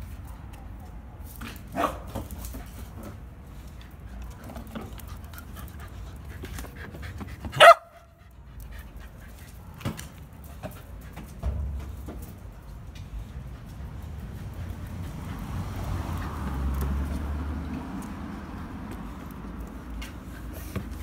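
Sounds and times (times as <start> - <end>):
dog barking: 1.8 - 2.1, 7.6 - 8.1
dogs panting: 2.4 - 21.0.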